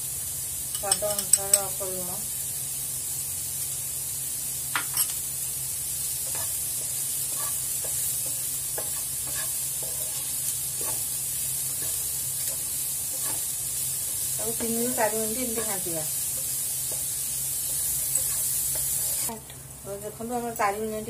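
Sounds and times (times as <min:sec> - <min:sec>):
onions sizzling in hot oil: 0:00.0 - 0:21.0
wooden spatula scraping pan: 0:08.8 - 0:11.1, 0:11.8 - 0:13.5.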